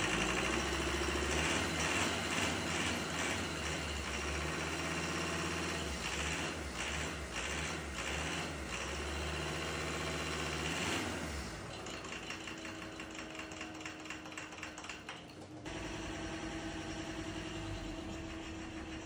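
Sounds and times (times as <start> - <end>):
diesel engine idling with ticking clatter: 0.0 - 19.0.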